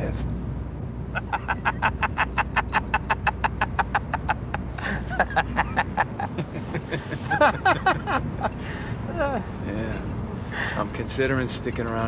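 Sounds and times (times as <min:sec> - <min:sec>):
man laughing hard: 0:01.2 - 0:08.5.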